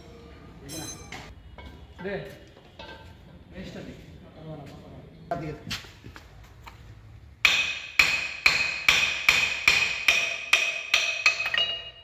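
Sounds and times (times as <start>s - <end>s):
hammer striking metal: 7.4s - 12.0s.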